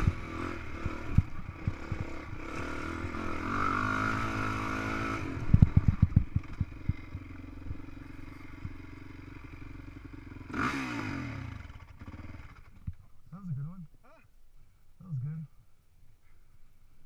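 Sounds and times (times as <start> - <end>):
dirt bike engine revving: 0.0 - 12.9.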